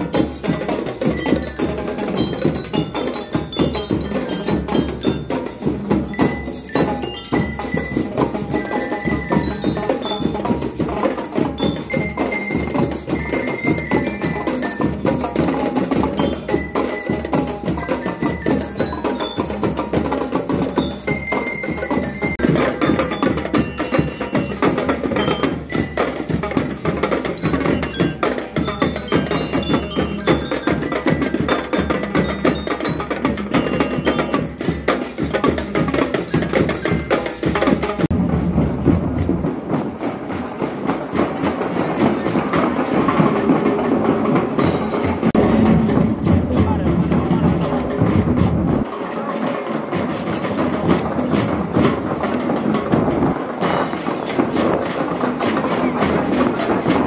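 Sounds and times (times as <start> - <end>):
bell lyres playing melody: 0.0 - 38.1, 44.6 - 46.7
marching drums: 0.0 - 57.0.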